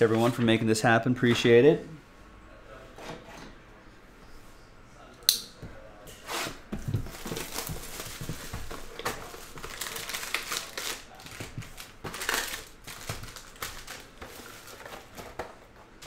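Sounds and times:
plastic wrap crinkling: 6.8s - 15.7s.

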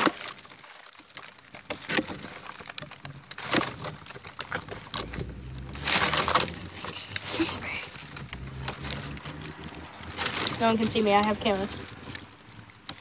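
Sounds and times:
dry leaves rustling and crackling: 0.0s - 13.0s
low rumble: 4.0s - 13.0s.

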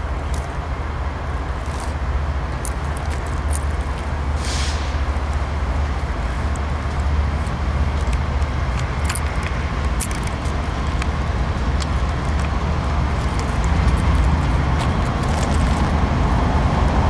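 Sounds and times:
diesel locomotive engines rumbling: 0.0s - 17.0s
short hiss: 4.4s - 5.2s
sharp clicks: 6.5s - 16.0s.

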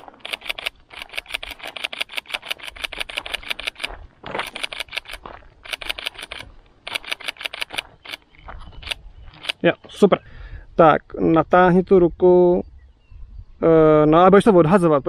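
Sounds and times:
camera shutter bursts: 0.0s - 8.2s.

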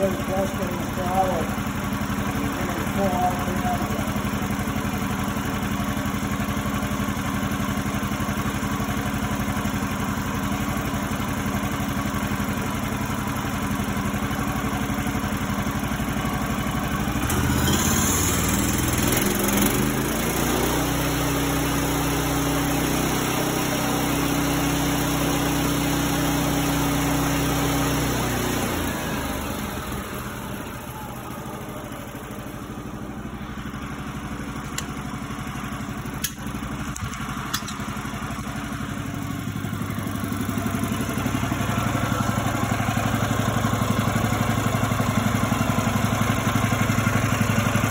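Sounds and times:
sawmill engine idling and revving: 0.0s - 47.9s.

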